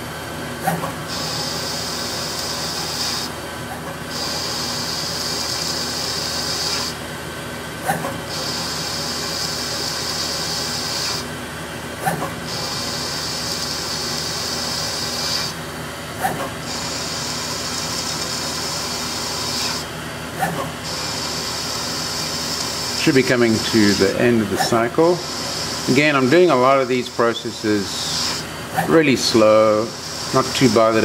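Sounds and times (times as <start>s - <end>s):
low machine hum: 0.0s - 31.0s
lathe cutting hiss: 1.1s - 3.4s, 4.1s - 7.0s, 8.3s - 11.3s, 12.5s - 15.6s, 16.6s - 19.9s, 20.8s - 31.0s.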